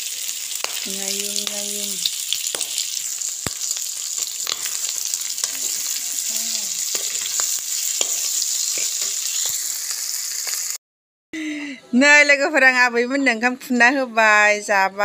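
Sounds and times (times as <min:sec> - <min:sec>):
food sizzling in oil: 0:00.0 - 0:10.8.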